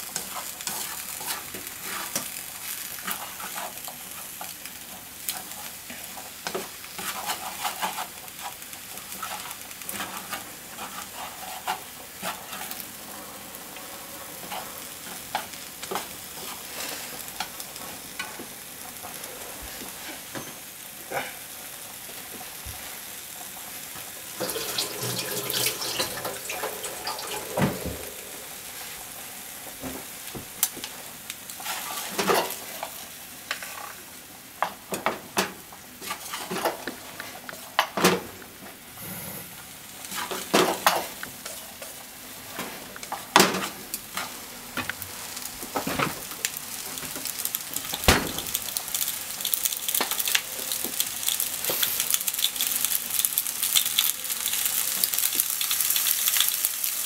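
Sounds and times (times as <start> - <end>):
food sizzling in a frying pan: 0.0 - 57.0
chopsticks scraping a pan: 0.2 - 2.3, 3.0 - 4.5, 5.3 - 12.9, 31.6 - 34.0, 36.0 - 36.8.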